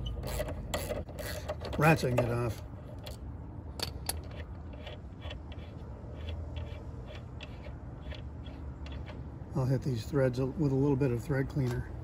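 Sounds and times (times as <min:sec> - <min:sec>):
ratchet wrench clicking: 0:00.0 - 0:03.2.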